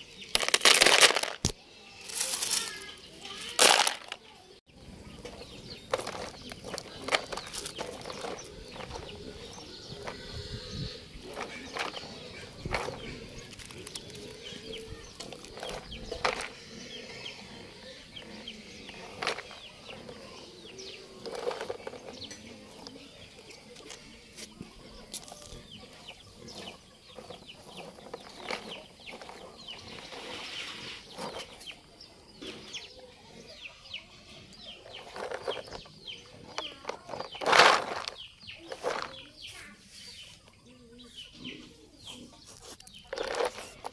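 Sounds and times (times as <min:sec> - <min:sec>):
stones and toy truck on gravel: 0:00.0 - 0:40.6, 0:42.0 - 0:43.9.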